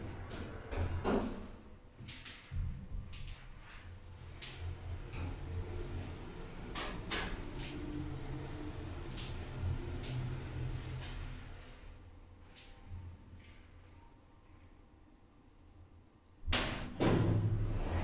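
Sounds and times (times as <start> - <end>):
elevator car humming: 0.0 - 1.4, 4.1 - 11.9.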